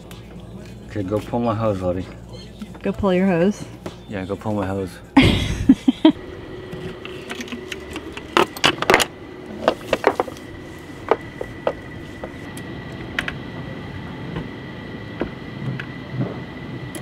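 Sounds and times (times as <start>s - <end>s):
faint steady high whine: 0.0s - 17.0s.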